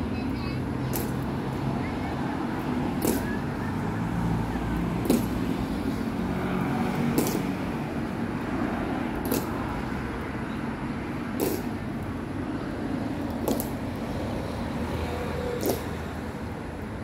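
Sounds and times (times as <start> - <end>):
road traffic hum: 0.0 - 17.0
boot heels on stone pavement: 4.8 - 6.2.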